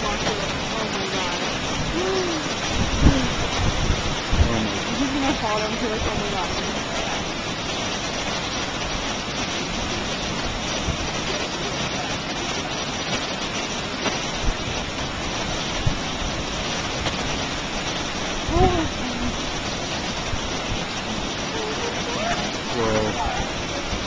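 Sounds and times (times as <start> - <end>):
waterfall roaring: 0.0 - 24.0
voice-like sound: 0.6 - 3.4, 4.4 - 5.2, 21.0 - 24.0.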